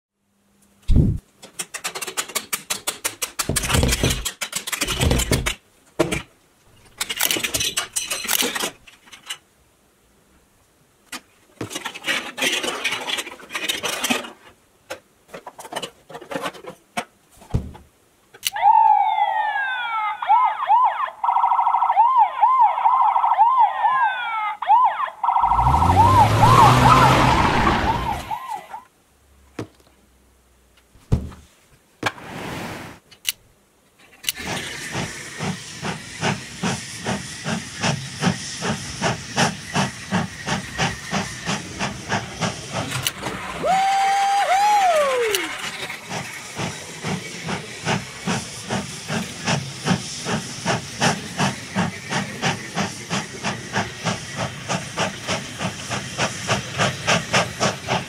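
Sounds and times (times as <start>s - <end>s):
electronic siren warbling: 18.6s - 28.8s
loud rushing noise: 25.4s - 28.4s.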